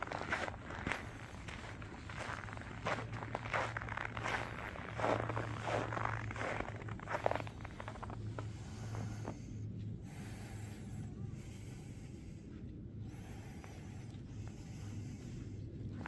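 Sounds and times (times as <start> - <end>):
footsteps crunching in snow: 0.0 - 9.4
steady low hum: 0.0 - 16.0.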